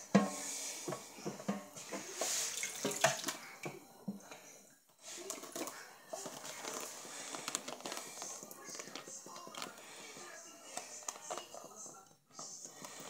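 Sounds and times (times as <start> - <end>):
tap water running into metal sink: 2.2 - 3.4.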